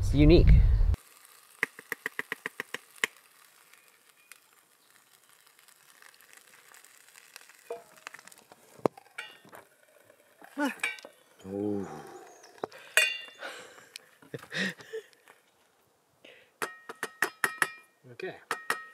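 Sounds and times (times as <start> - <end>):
metal pots clinking: 8.9 - 9.6, 10.4 - 11.2, 12.8 - 13.4.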